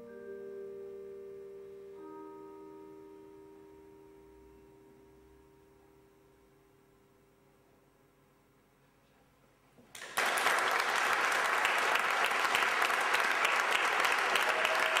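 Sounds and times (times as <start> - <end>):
audience applause: 9.9 - 15.0.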